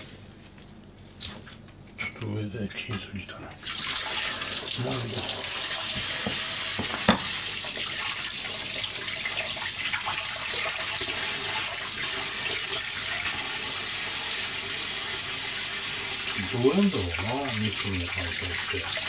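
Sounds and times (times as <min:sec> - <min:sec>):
tap running into steel sink: 0:05.9 - 0:07.4.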